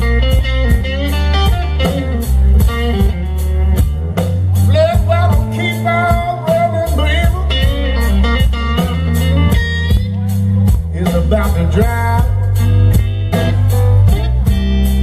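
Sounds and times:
blues band playing: 0.0 - 15.0
electric guitar soloing: 0.0 - 15.0.

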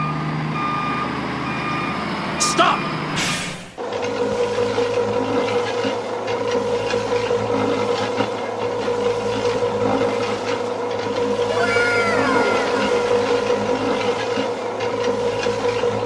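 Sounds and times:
concrete mixer truck whining: 0.0 - 16.0
rattling mixer drum turning: 3.8 - 16.0.

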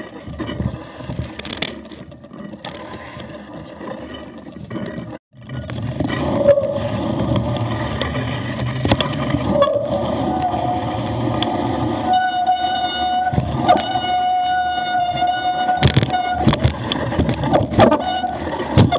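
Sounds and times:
bike rumbling and rattling: 0.0 - 18.9
high brake squeal: 12.0 - 16.5.

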